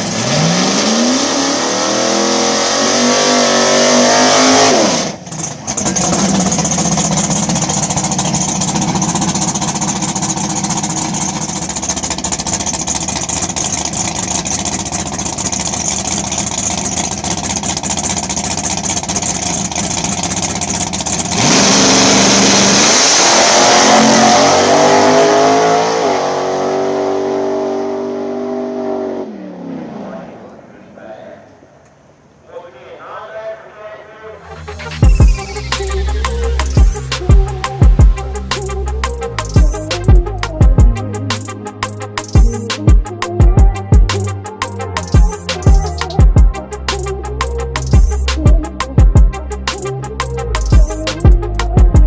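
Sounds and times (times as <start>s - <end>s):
truck launching at full throttle: 0.0s - 30.8s
pickup truck engine revving: 0.0s - 30.9s.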